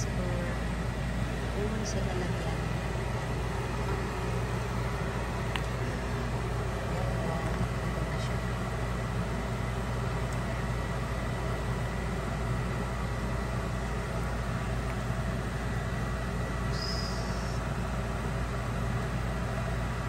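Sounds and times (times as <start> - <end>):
low mechanical hum: 0.0 - 20.0
thin high tone: 16.7 - 17.6.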